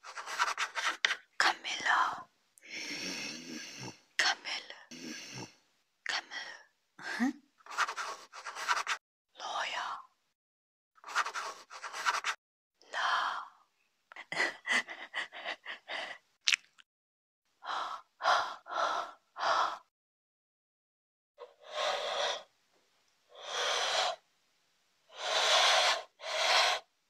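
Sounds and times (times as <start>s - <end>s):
person breathing heavily: 2.6s - 4.0s, 4.9s - 5.6s, 14.3s - 16.2s, 17.6s - 19.9s, 21.4s - 22.5s, 25.1s - 26.9s.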